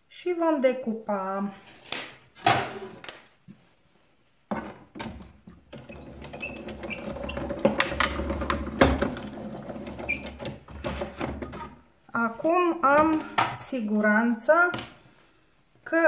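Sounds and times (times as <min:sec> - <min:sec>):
plastic plates clattering: 0:04.6 - 0:11.8.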